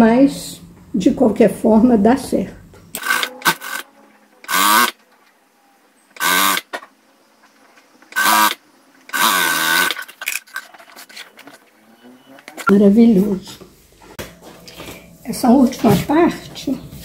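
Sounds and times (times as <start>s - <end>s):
sewing machine stitching: 3.0s - 5.0s, 6.2s - 6.7s, 8.1s - 10.1s.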